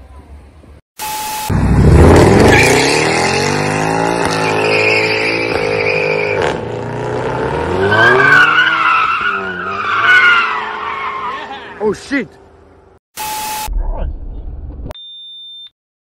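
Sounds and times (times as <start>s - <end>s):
car engine revving: 1.5s - 11.7s
tyres squealing: 7.9s - 12.0s.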